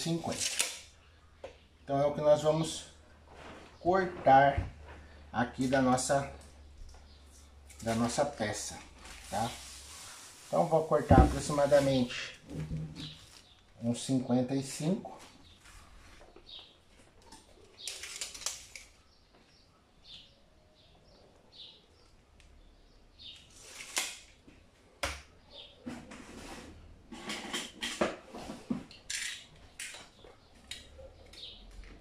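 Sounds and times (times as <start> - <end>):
blade cutting plastic film: 0.2 - 0.9
plastic film rustling and crinkling: 7.6 - 12.4, 17.7 - 19.0.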